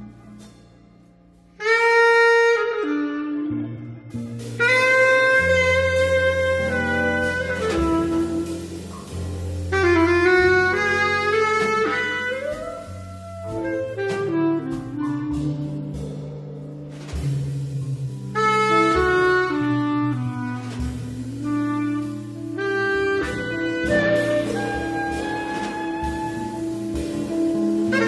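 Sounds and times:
bass clarinet held notes: 1.5 - 28.0.

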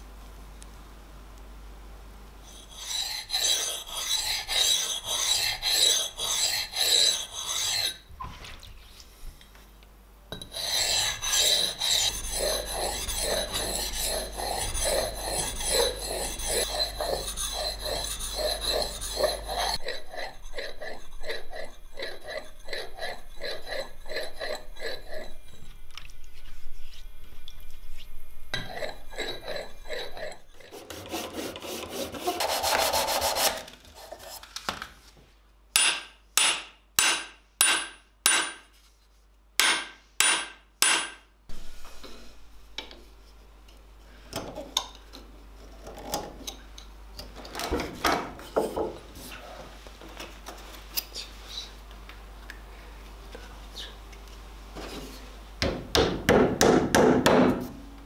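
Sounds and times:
axe head rasping on sharpening stone: 2.5 - 8.0, 10.4 - 25.7, 28.6 - 32.6
knife scraping wood: 2.5 - 8.0, 10.4 - 27.1, 28.0 - 34.5.

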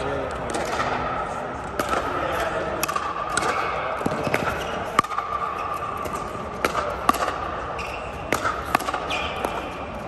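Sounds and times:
steady background hum: 0.0 - 10.0
ball bouncing on court: 1.7 - 2.2, 2.8 - 10.0.

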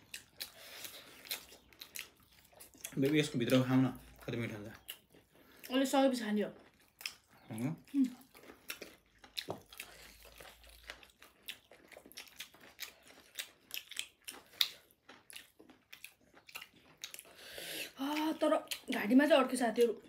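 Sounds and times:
chewing and mouth sounds: 0.0 - 20.0.

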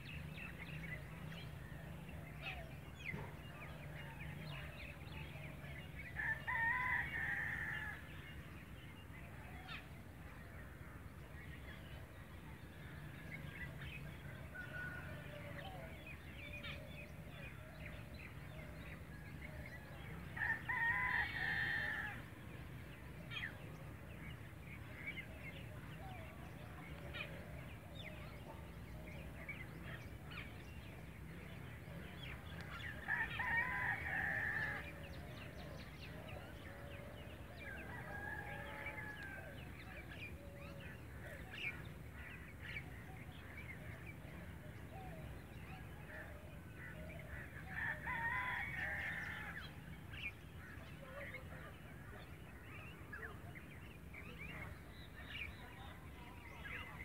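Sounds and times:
rooster crowing: 37.8 - 39.6.

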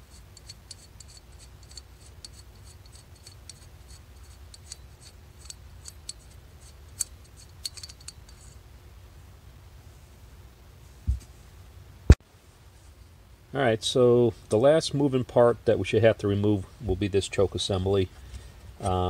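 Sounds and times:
metallic ticks and scraping: 0.0 - 8.6.

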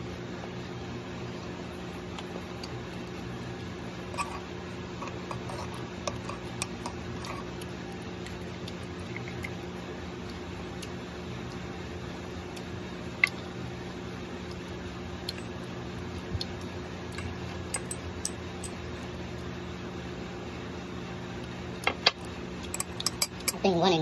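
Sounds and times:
steady low hum: 0.0 - 24.0
spoon scraping ceramic cup: 4.1 - 7.5.

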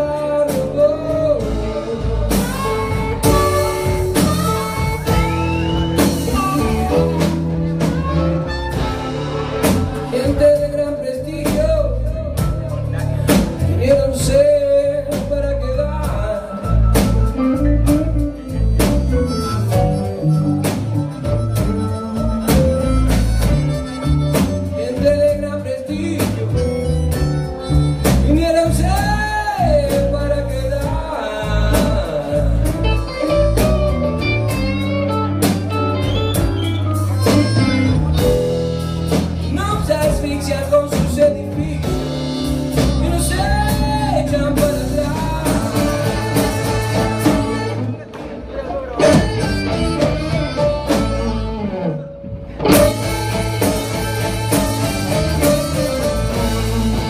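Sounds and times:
live blues band playing: 0.0 - 57.0
lead guitar bending notes: 1.0 - 10.8, 30.2 - 39.6, 41.3 - 57.0.

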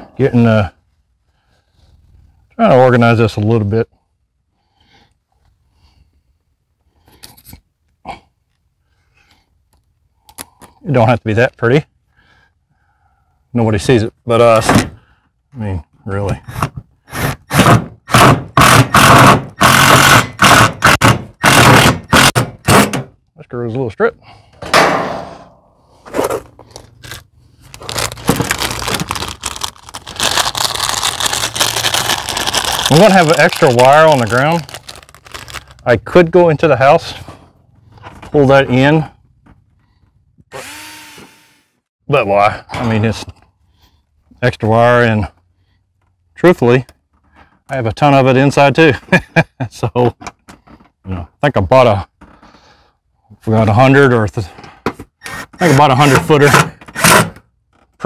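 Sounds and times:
cable handling rustling: 26.1 - 35.9.

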